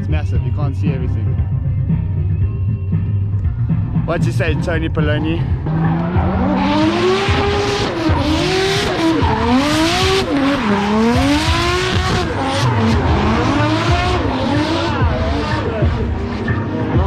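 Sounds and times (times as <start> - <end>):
car engine revving hard: 5.5 - 17.0.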